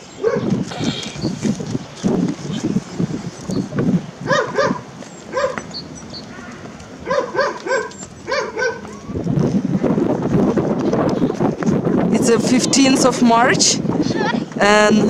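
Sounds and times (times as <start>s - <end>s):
wind rumbling on microphone: 0.0s - 15.0s
young dog yapping: 4.2s - 5.7s, 6.3s - 9.0s.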